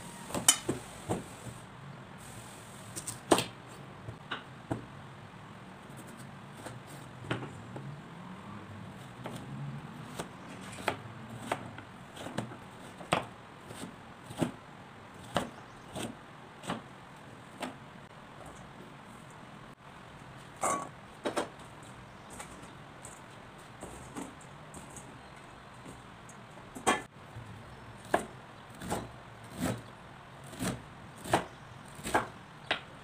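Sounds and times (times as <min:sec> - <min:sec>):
knife chopping on wooden board: 0:15.2 - 0:16.9, 0:28.0 - 0:29.8, 0:30.5 - 0:32.8.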